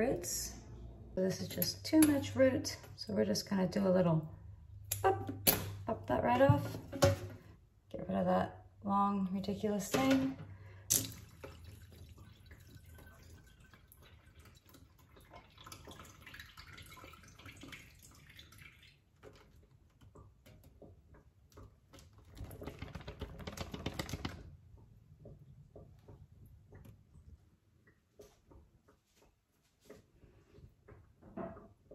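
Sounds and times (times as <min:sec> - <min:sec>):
faint crackling and dripping: 0:08.6 - 0:31.9.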